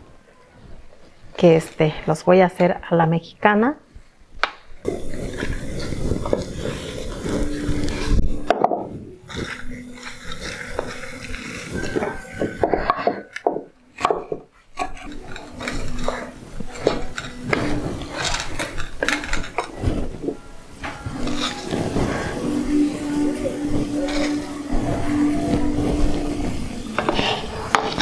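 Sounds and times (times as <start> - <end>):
wood knocking on clay pot: 8.5 - 8.9, 11.9 - 15.7.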